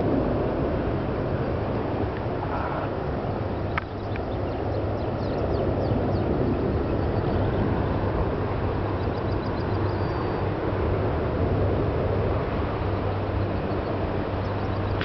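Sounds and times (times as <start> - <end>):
distant aircraft rumble: 0.0 - 15.0
small birds chirping: 3.6 - 8.0, 8.9 - 10.5, 13.1 - 15.0.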